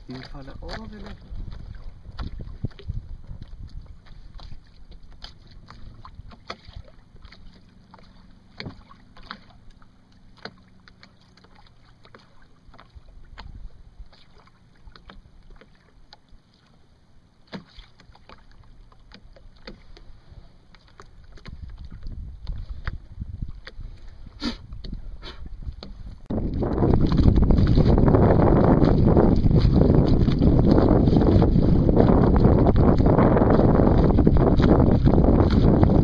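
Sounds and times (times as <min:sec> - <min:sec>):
water slapping against boat hull: 0:00.0 - 0:36.0
low rumble: 0:25.0 - 0:36.0.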